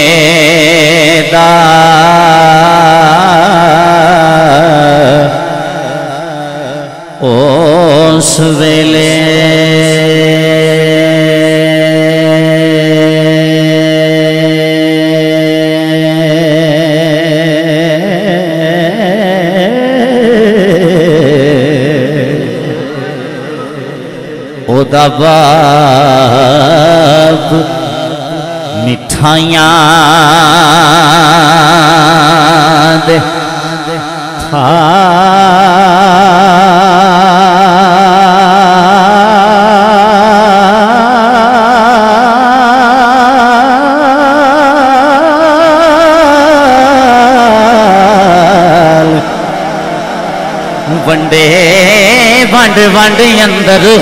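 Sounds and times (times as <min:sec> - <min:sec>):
man singing through loudspeaker: 0:00.0 - 0:54.0.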